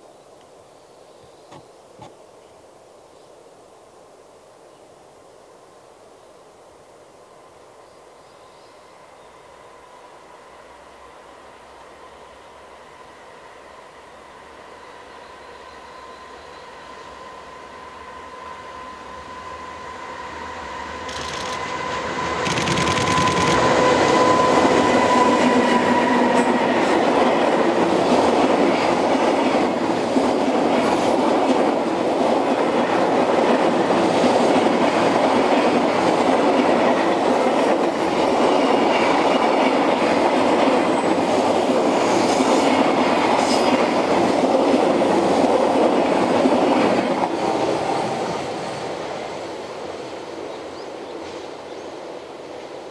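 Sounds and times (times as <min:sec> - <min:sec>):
electric locomotive whine: 0:07.4 - 0:52.9
train wagons rumbling and clacking: 0:20.9 - 0:49.3
high wheel squeal: 0:40.9 - 0:42.3.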